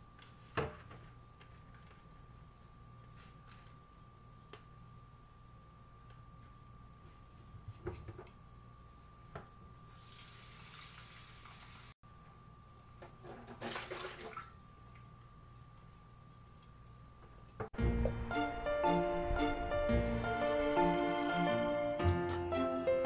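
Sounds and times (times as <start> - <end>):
water splashing in bowl: 13.5 - 14.7.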